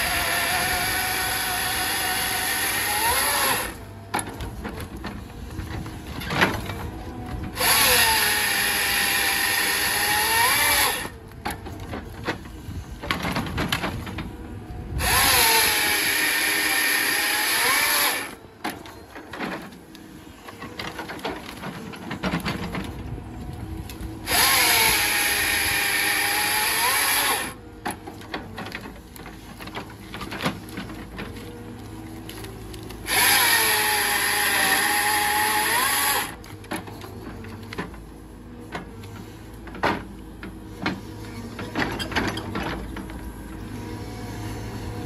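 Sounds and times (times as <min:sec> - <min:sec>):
grapple saw whining through wood: 0:00.0 - 0:14.3, 0:14.9 - 0:45.0
excavator hydraulics: 0:24.0 - 0:45.0.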